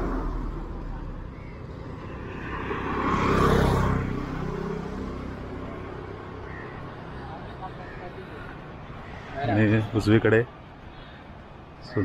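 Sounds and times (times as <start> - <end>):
vehicle passing by: 0.0 - 10.1.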